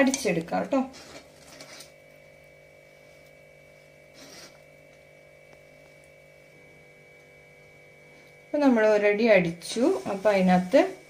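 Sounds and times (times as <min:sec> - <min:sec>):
faint steady hum: 0:00.0 - 0:11.0
soft scrape: 0:04.1 - 0:04.7.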